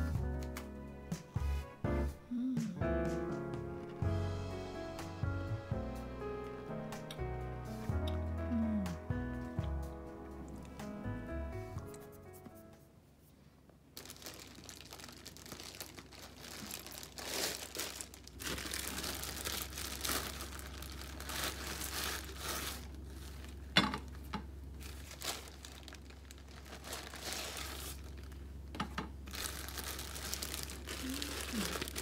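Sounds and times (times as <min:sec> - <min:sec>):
plastic bag crinkling: 0:14.0 - 0:28.6, 0:29.2 - 0:32.0.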